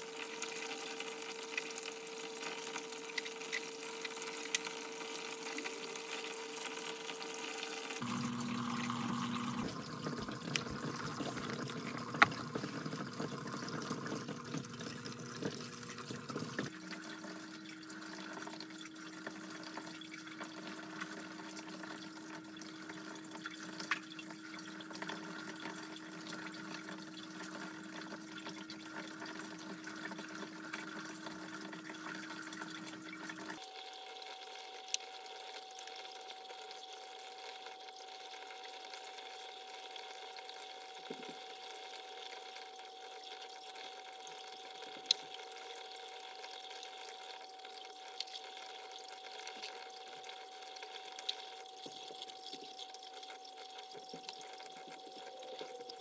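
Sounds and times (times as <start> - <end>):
water trickling and splashing: 0.0 - 39.2, 39.8 - 56.0
steady hum: 8.0 - 12.8.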